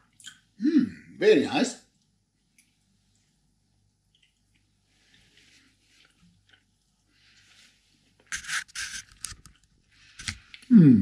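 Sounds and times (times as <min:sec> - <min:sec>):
quiet chewing: 0:01.9 - 0:10.7.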